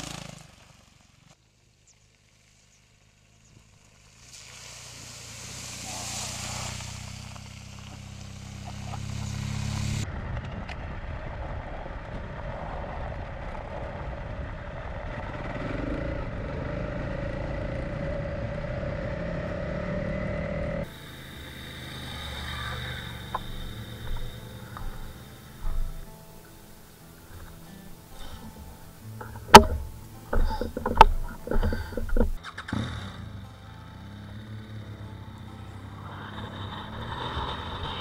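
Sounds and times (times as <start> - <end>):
motorcycle engine: 0.0 - 38.0
wind noise: 9.9 - 15.7.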